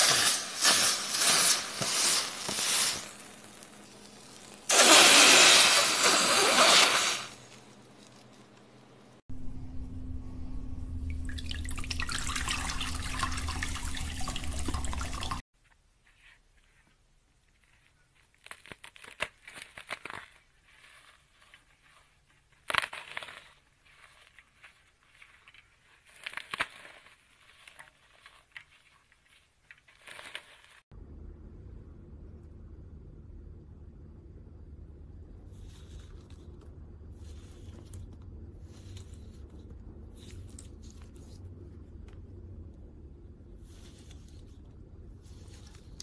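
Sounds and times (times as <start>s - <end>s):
low hum: 7.5s - 15.4s, 30.9s - 46.0s
slime squelching and crackling: 17.5s - 30.8s.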